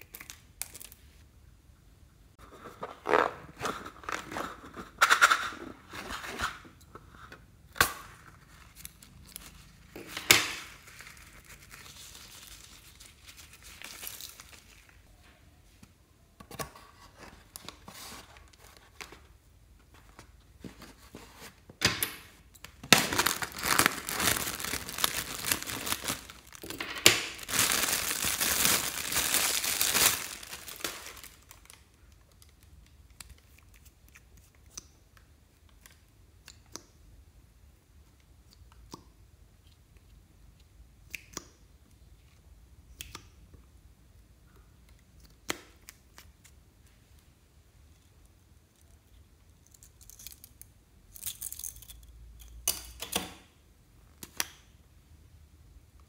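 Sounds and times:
foil balloon crinkling and tearing: 8.4 - 15.0, 22.8 - 31.8.

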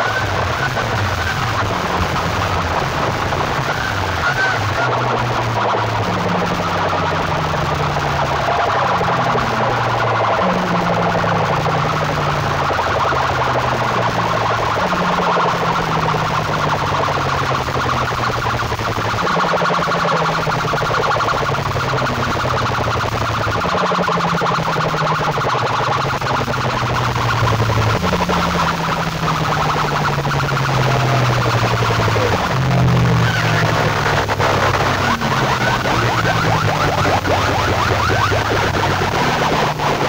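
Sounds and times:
low held tones: 0.0 - 40.0
horn loudspeakers blaring: 19.0 - 40.0.

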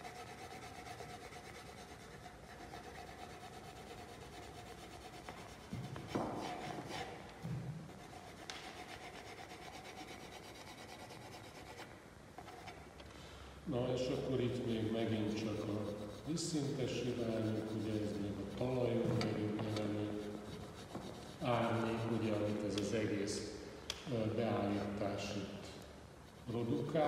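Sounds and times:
pencil shading on paper: 0.0 - 7.2, 7.9 - 11.8, 15.0 - 18.7, 19.6 - 22.7.

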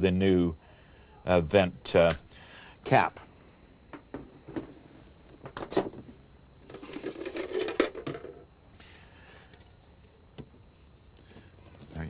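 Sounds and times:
rustling and scraping: 4.2 - 8.5.

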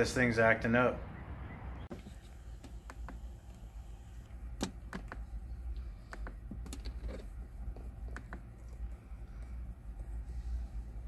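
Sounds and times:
steady low hum: 1.9 - 11.0.

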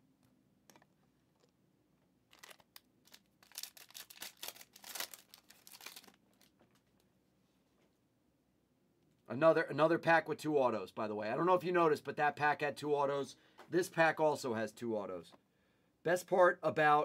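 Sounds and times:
wrapper tearing and crinkling: 2.3 - 6.8.

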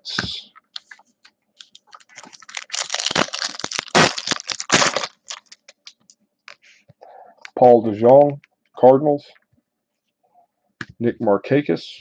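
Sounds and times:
wrapper tearing and crinkling: 1.6 - 6.1.

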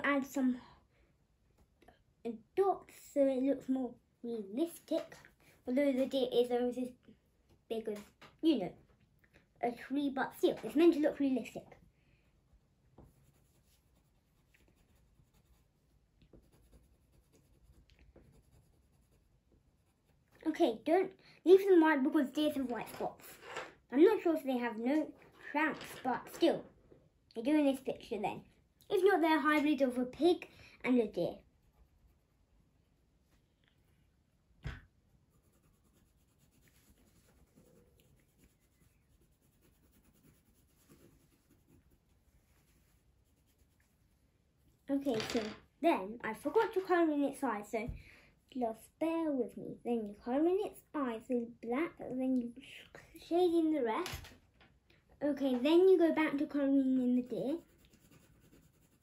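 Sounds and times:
pencil scratching on paper: 13.0 - 20.6, 35.2 - 44.2, 56.3 - 59.0.

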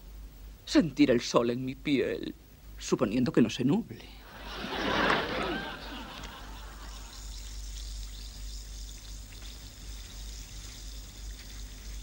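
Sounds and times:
tablet fizzing in water: 6.2 - 12.0.

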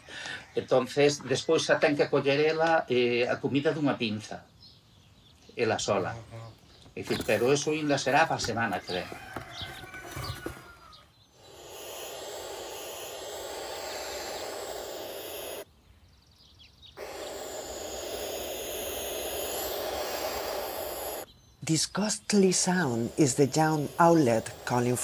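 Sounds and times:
owlet hissing begging call: 11.3 - 15.7, 17.0 - 21.3, 22.0 - 25.0.

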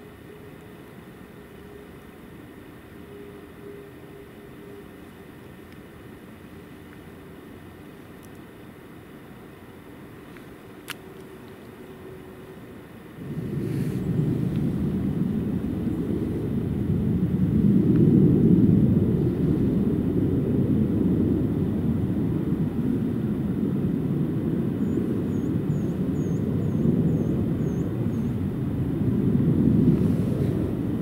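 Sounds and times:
wind buffeting the microphone: 13.0 - 31.0.

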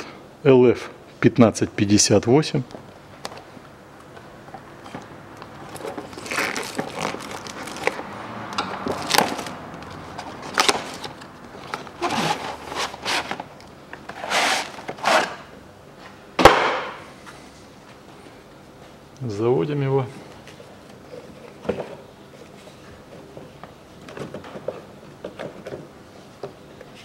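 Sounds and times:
cardboard packaging rustling: 5.6 - 8.1, 8.8 - 15.4
sharp knock: 16.4 - 17.0.

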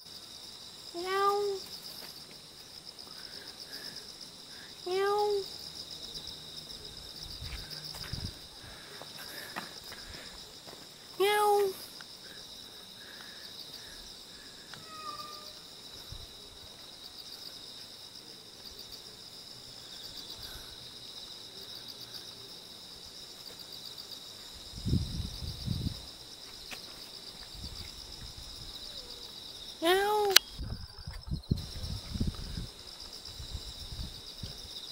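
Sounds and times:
insects chirring: 0.0 - 34.9
meow-like call: 14.7 - 15.6.

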